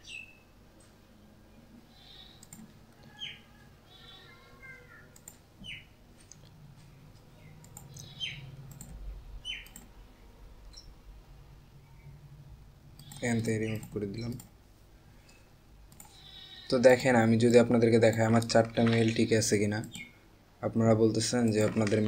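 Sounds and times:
bird chirping: 0:00.0 - 0:00.6, 0:03.0 - 0:04.8, 0:05.6 - 0:06.0, 0:07.0 - 0:08.7, 0:09.4 - 0:09.8, 0:10.7 - 0:11.0, 0:13.1 - 0:14.4
computer mouse clicks: 0:02.3 - 0:03.1, 0:05.2 - 0:06.6, 0:07.6 - 0:09.9, 0:13.0 - 0:14.5, 0:15.3 - 0:16.3.

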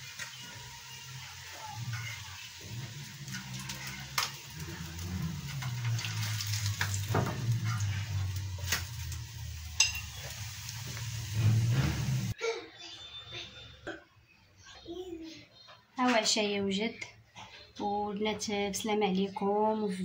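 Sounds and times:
fish sizzling in hot oil: 0:00.0 - 0:12.4.

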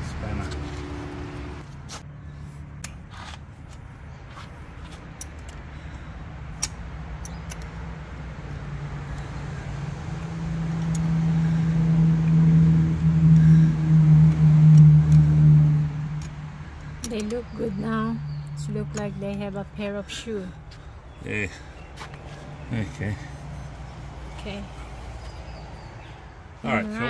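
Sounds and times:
light metallic clicks: 0:06.5 - 0:08.0.

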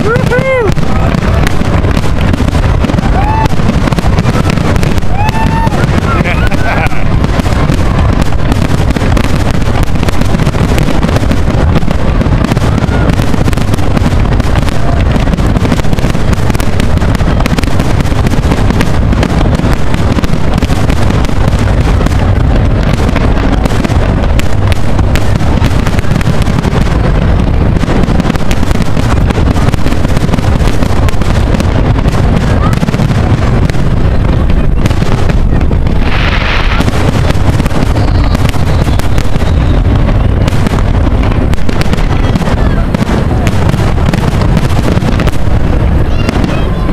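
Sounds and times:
fireworks crackling: 0:00.0 - 0:46.9
low rumble: 0:00.0 - 0:46.9.

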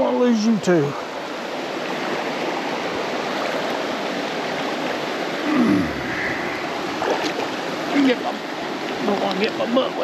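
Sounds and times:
stream rushing over rocks: 0:00.0 - 0:10.0
man groaning: 0:05.4 - 0:06.2.

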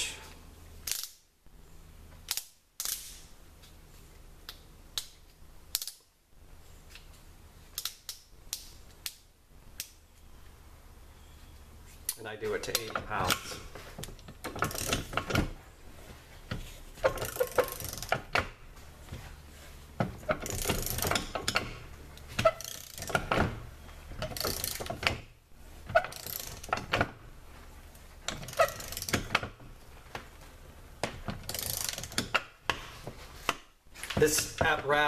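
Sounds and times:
torque wrench ratchet clicks: 0:00.8 - 0:01.2, 0:14.7 - 0:15.1, 0:17.1 - 0:18.2, 0:20.4 - 0:21.6, 0:22.4 - 0:23.2, 0:24.3 - 0:24.9, 0:26.1 - 0:26.8, 0:28.4 - 0:29.3, 0:31.5 - 0:32.3.

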